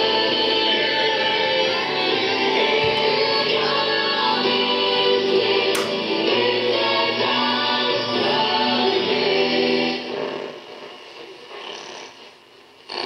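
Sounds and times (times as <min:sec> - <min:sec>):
radio playing music with singing: 0:00.0 - 0:12.6.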